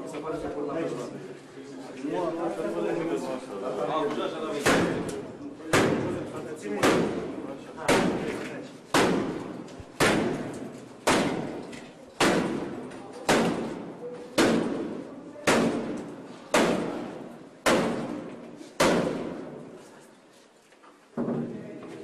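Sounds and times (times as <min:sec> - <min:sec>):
heavy blows on a door: 0:04.6 - 0:19.8.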